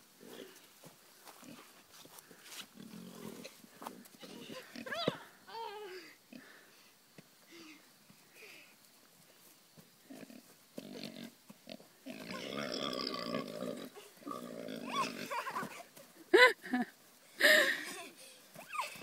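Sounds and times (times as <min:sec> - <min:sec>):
pigs grunting and squealing: 0:10.1 - 0:15.7
high-pitched cries: 0:14.8 - 0:15.8, 0:17.4 - 0:19.0.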